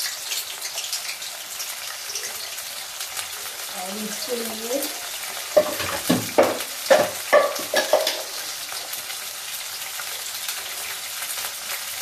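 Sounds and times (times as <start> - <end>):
potatoes sizzling in oil: 0.0 - 12.0
spatula clinking against pan: 5.6 - 8.3.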